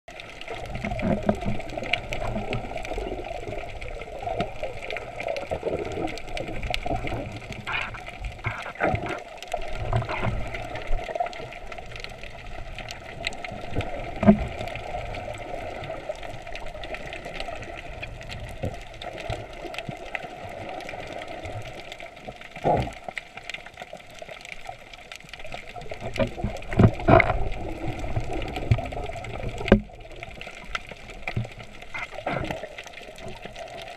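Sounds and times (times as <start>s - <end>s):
muffled underwater water rush: 0.1s - 33.9s.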